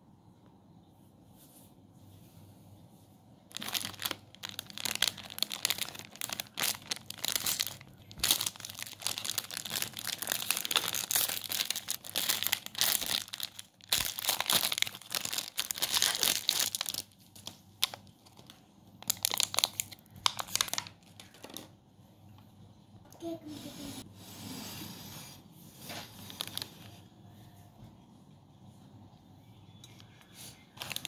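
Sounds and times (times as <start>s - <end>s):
plastic wrapper crinkling: 3.5s - 21.8s, 25.9s - 27.0s, 30.7s - 31.0s.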